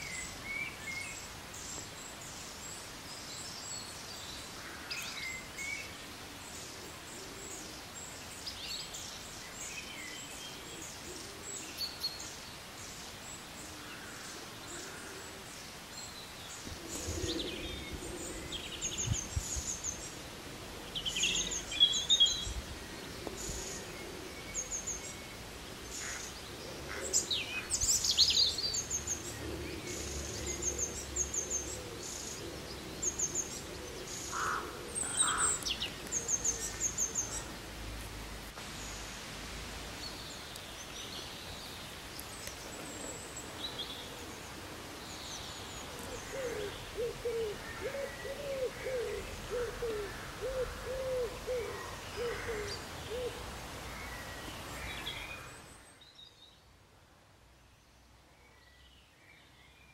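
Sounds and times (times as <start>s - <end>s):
birds chirping and calling: 13.6s - 20.2s, 20.9s - 37.8s, 40.0s - 53.5s.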